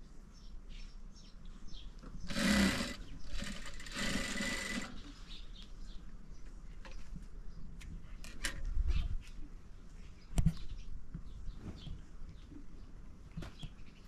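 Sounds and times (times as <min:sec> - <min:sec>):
sewing machine stitching: 0:02.3 - 0:05.0.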